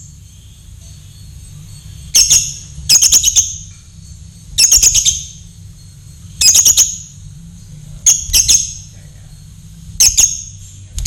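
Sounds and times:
lovebird shrill chirps: 2.0s - 3.7s, 4.6s - 5.5s, 6.4s - 7.2s, 8.1s - 8.9s, 10.0s - 10.6s.

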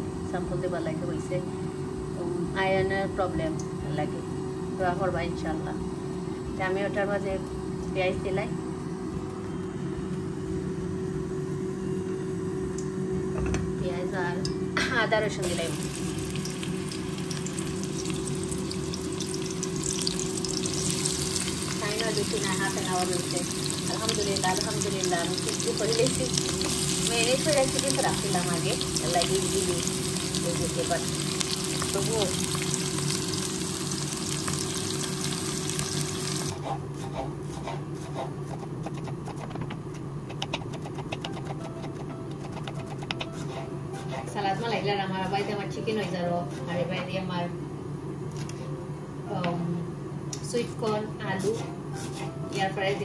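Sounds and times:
steady low hum: 0.0s - 53.0s
onions sizzling in hot oil: 15.4s - 36.6s
knife chopping on wooden board: 36.7s - 44.2s.

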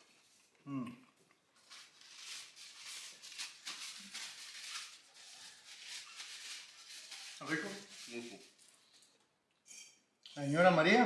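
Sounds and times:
paper napkin crinkling: 1.5s - 9.2s.

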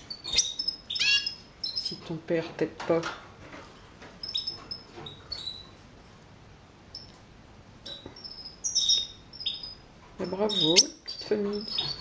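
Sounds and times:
birds chirping: 0.0s - 2.2s, 4.2s - 5.8s, 7.8s - 12.0s.

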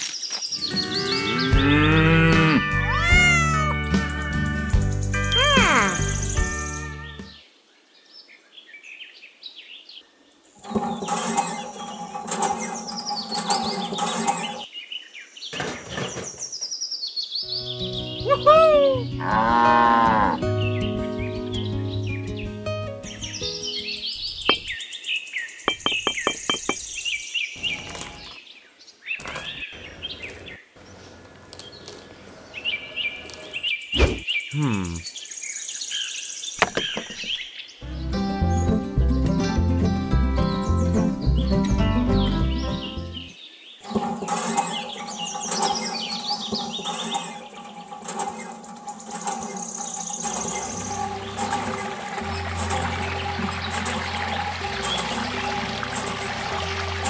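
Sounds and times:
small birds chirping: 0.0s - 38.9s, 40.4s - 55.7s
wooden bricks and pebbles knocking: 24.4s - 24.8s, 25.7s - 27.0s, 36.6s - 37.4s
single thunk: 36.6s - 37.3s.

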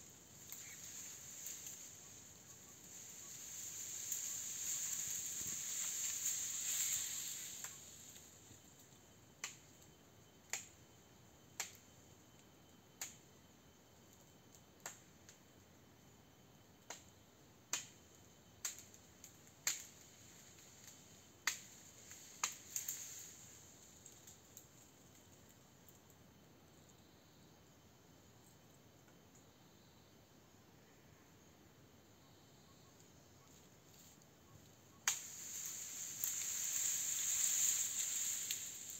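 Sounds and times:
leafy rustle: 0.0s - 9.0s, 18.9s - 25.7s, 33.4s - 38.9s.

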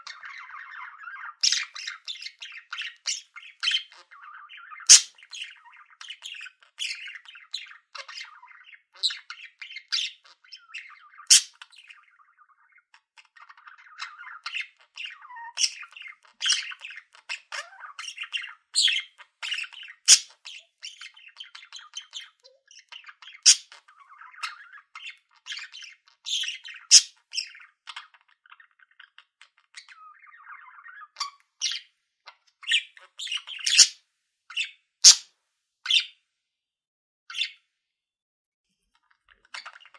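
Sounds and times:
budgerigars chattering: 0.0s - 31.8s, 32.6s - 35.2s.

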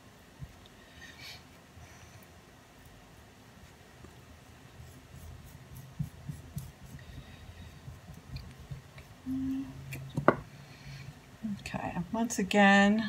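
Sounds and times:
wet clay being worked by hand: 4.4s - 9.2s.

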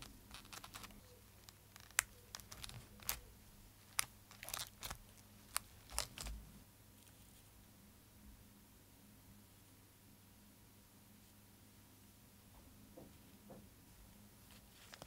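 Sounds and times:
crinkly paper rustles: 0.0s - 6.4s, 14.5s - 15.0s.

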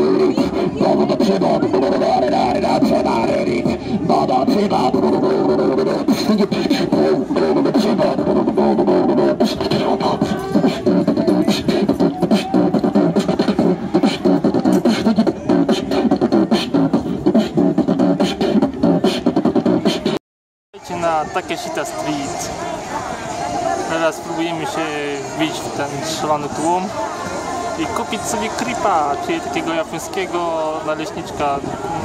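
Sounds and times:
beatboxing through amplifier: 0.0s - 20.2s.

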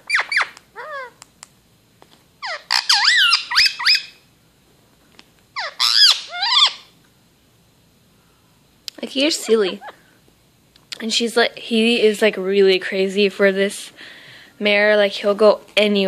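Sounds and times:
parakeet chattering: 0.0s - 1.2s, 2.4s - 4.2s, 5.6s - 6.9s, 9.1s - 10.0s.

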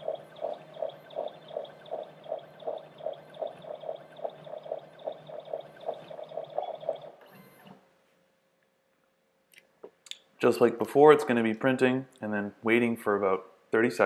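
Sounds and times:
steady low hum: 0.0s - 7.6s
printer carriage pulsing: 0.0s - 7.8s.

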